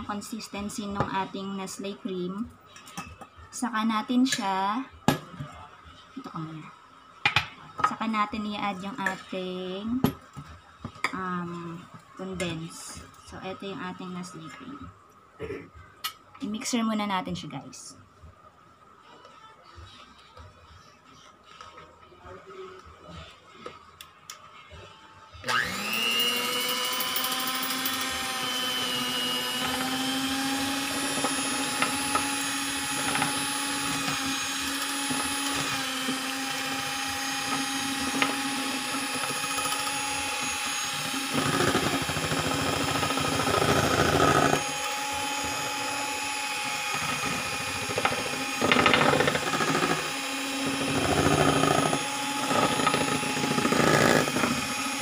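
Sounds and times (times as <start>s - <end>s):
electric hand mixer whipping cream: 25.4s - 55.0s.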